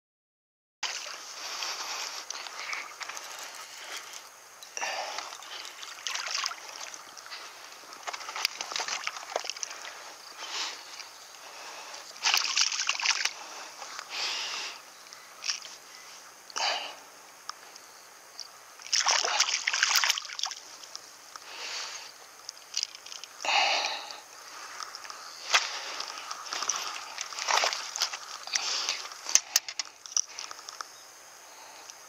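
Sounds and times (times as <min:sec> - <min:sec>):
fish splashing in water: 0:04.8 - 0:11.1, 0:12.2 - 0:13.5, 0:18.8 - 0:20.7, 0:25.4 - 0:29.0.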